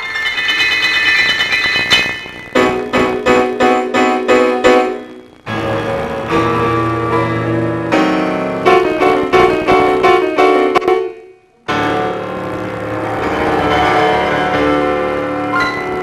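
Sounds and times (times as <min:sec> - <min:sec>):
piano playing chords: 0:00.0 - 0:16.0.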